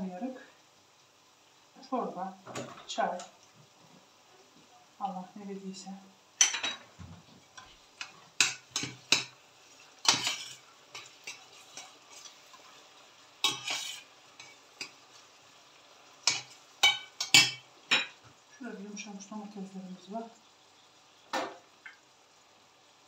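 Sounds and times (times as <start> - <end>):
metal spoon scraping a steel pan: 10.0 - 12.4, 13.4 - 14.9.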